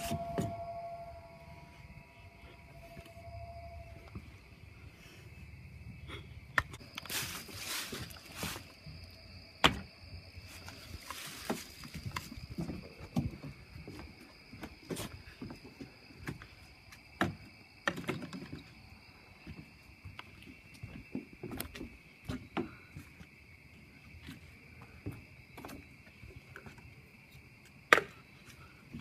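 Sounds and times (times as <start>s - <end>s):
night insects chirring: 0.0s - 29.0s.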